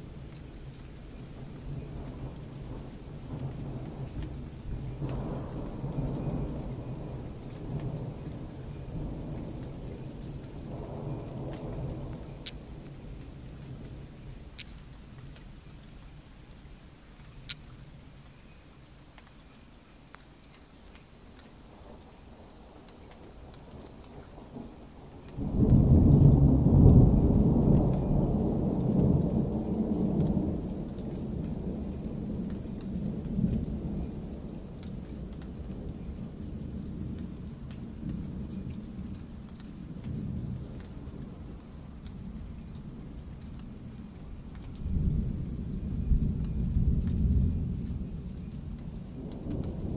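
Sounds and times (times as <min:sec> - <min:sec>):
thunder rumbling: 0:01.7 - 0:14.0, 0:25.4 - 0:38.6, 0:44.8 - 0:49.9.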